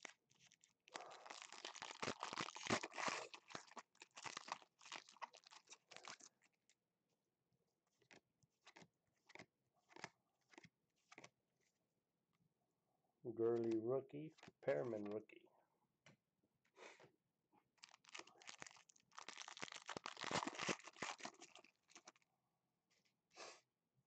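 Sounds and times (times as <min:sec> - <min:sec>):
foil wrapper crinkling: 0:00.0 - 0:06.3, 0:17.8 - 0:22.2
cards clicking and snapping: 0:08.0 - 0:11.3.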